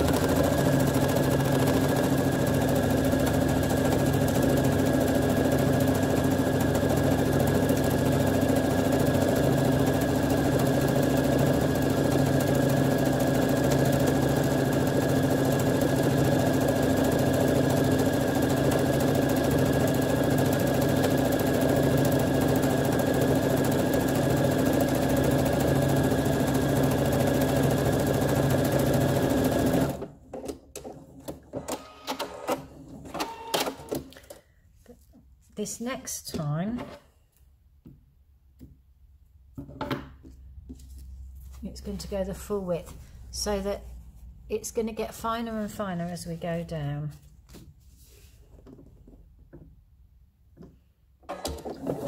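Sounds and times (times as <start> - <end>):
sewing machine running: 0.0 - 30.1.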